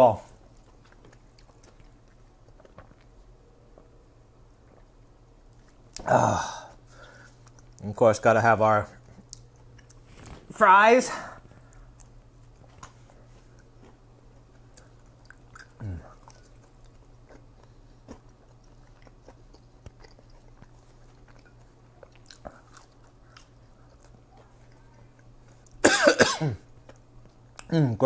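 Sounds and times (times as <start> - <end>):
person chewing crunchy fries: 0.3 - 8.0, 8.9 - 10.5, 11.4 - 25.8, 26.6 - 27.8
person coughing: 25.8 - 26.6.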